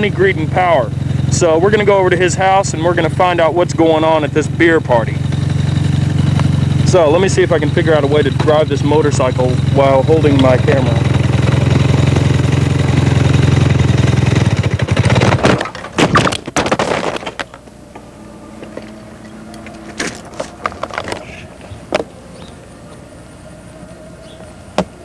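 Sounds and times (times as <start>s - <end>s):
faint steady hum: 0.0s - 14.5s, 15.5s - 25.0s
motorcycle engine running: 0.0s - 25.0s
clattering knocks and scrapes: 15.1s - 19.0s, 19.6s - 22.1s.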